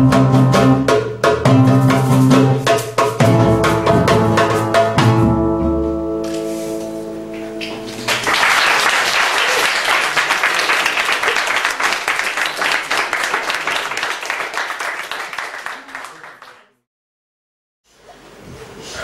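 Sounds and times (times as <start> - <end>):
acoustic guitar chord ringing: 3.2 - 8.3
audience applause: 7.6 - 16.8.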